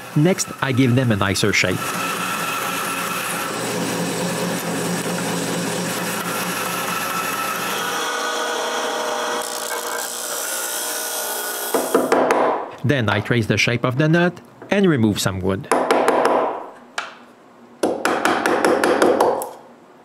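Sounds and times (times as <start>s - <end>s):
disc sander sanding wood: 0.0s - 8.6s
bandsaw cutting wood: 0.0s - 12.1s.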